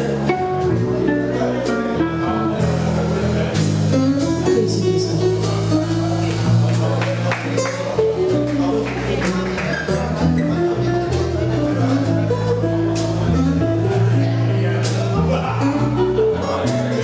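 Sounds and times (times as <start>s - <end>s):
guitar melody: 0.0s - 17.0s
walking bass line: 0.0s - 17.0s
drums with cymbal strikes: 2.6s - 8.8s.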